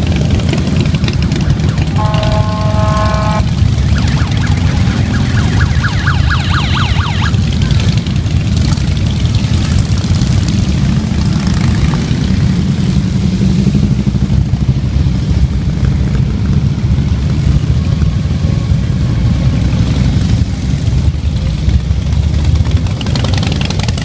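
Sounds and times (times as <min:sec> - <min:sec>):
motorcycles rumbling past slowly: 0:18.6 - 0:24.0.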